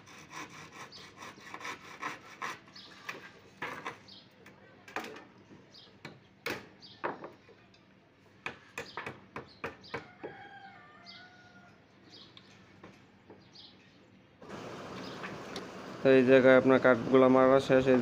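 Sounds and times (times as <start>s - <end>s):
rooster crowing: 10.0s - 11.8s
bird chirps: 15.0s - 15.3s.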